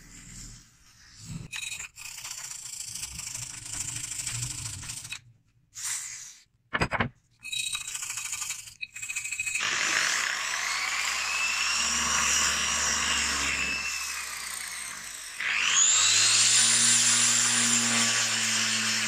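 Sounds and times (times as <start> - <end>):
rotary sander starting: 9.5 - 19.0.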